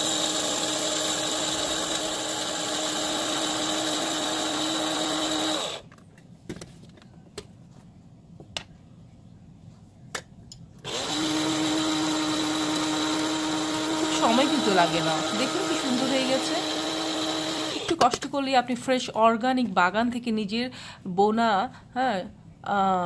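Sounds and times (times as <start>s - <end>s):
electric grinder humming: 0.0s - 5.8s, 10.9s - 17.9s.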